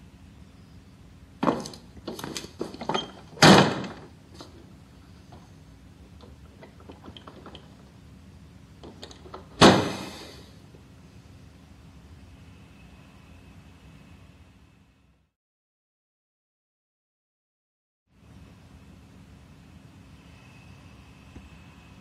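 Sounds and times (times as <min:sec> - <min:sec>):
door heavy thud: 0:02.6 - 0:04.1, 0:09.5 - 0:10.1.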